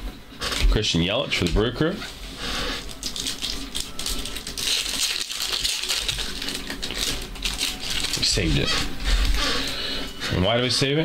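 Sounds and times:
trading cards rustling: 2.5s - 10.1s.

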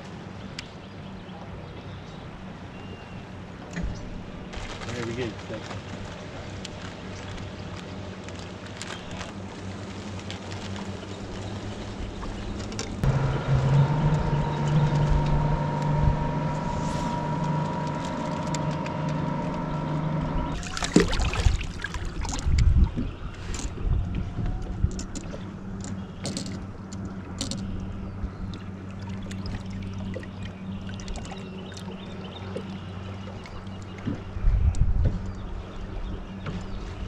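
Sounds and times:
electric trolling motor whine: 10.7s - 21.0s.

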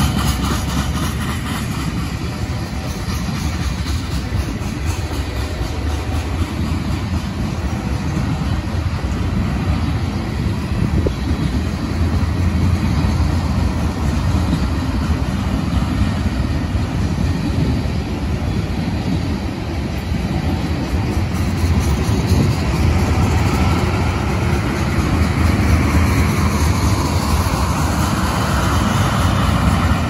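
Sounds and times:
freight train wheels rumbling on rails: 0.0s - 30.0s.

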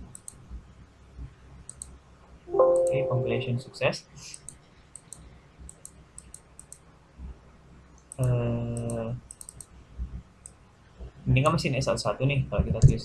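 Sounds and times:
computer mouse clicks: 0.0s - 0.4s, 1.7s - 2.0s, 4.3s - 6.8s, 8.0s - 9.7s.

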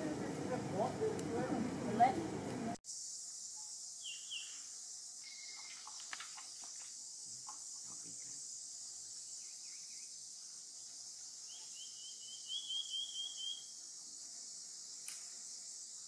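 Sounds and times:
high insect chorus: 2.8s - 16.0s
high chirps: 11.5s - 13.7s.

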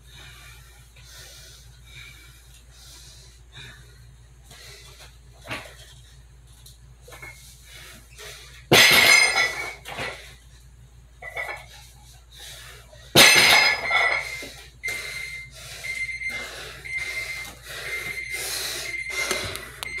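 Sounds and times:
hard breathing: 0.0s - 6.3s, 11.6s - 13.2s, 14.1s - 20.0s.

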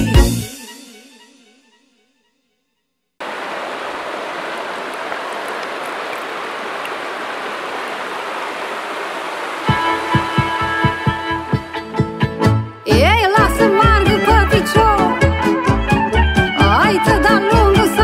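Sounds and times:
rushing noise: 3.2s - 10.4s.

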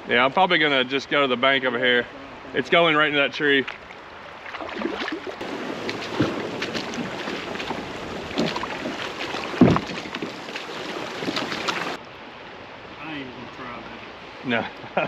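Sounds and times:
moving water: 0.0s - 15.0s
wind on microphone: 4.7s - 12.0s
kayak knocking and scraping on rocks: 5.4s - 12.0s
heavy thud: 9.6s - 10.2s.

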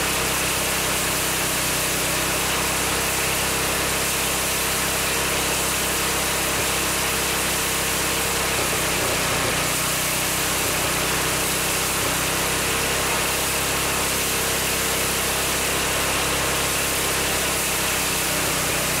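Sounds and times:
small petrol engine running: 0.0s - 19.0s.

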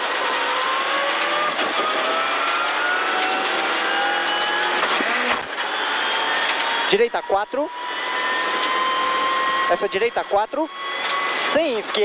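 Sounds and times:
car engine accelerating hard: 0.0s - 11.6s.

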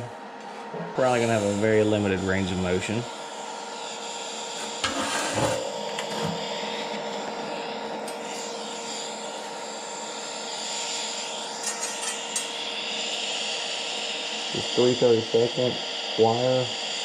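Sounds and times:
steady hiss: 0.9s - 13.3s.

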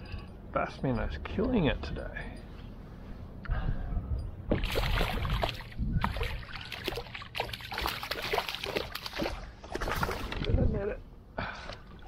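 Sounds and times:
fish splashing in water: 4.5s - 10.4s.

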